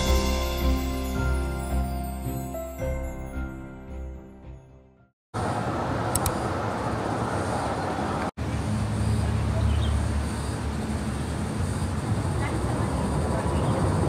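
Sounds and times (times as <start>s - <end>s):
road traffic noise: 5.4s - 14.0s.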